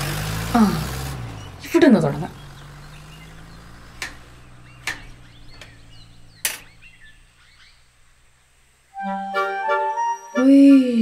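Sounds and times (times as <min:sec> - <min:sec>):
small birds chirping: 0:00.5 - 0:08.9
sharp clicks: 0:03.9 - 0:05.8.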